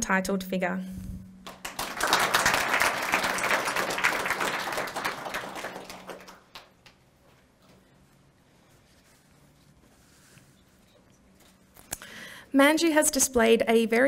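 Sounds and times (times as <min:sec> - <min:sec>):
audience applauding: 0:01.4 - 0:07.0.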